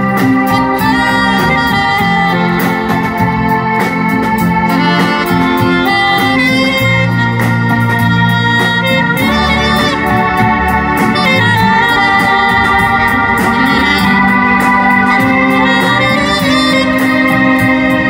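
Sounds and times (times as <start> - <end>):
bass: 0.0 - 18.0
cymbal and drum beat: 0.0 - 18.0
keyboard chords: 0.0 - 18.0
saxophone melody: 0.0 - 18.0.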